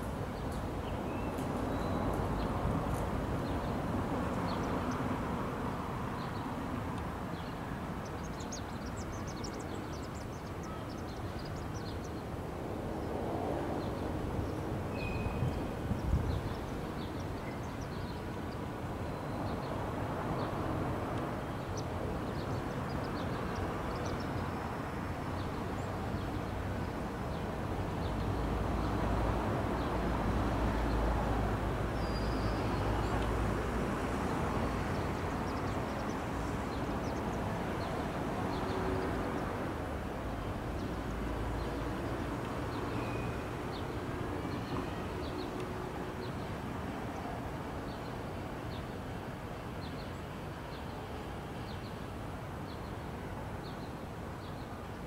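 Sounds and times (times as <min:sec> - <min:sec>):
distant traffic rumble: 0:00.0 - 0:55.0.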